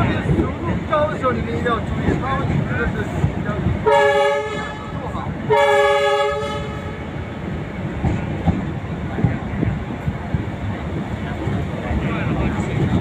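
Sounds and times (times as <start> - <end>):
low rumble of train: 0.0 - 13.0
train horn blasts: 3.8 - 7.1.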